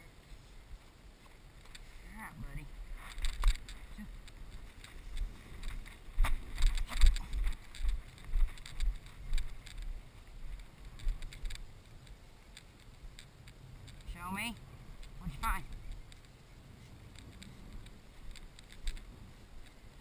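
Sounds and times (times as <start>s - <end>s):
wind buffeting microphone: 2.4s - 20.0s
footsteps through grass: 2.6s - 13.1s.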